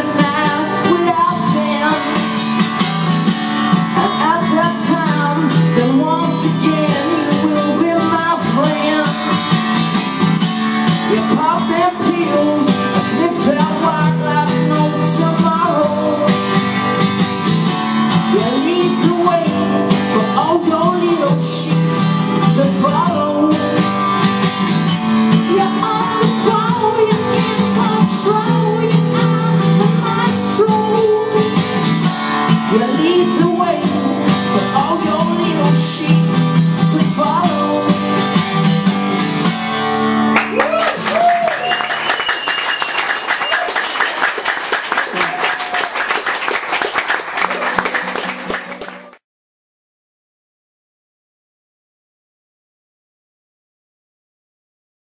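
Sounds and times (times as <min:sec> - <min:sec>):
acoustic guitar strumming: 0:00.0 - 0:40.6
man singing: 0:04.0 - 0:09.3, 0:11.0 - 0:16.4, 0:18.2 - 0:23.8, 0:32.7 - 0:38.1.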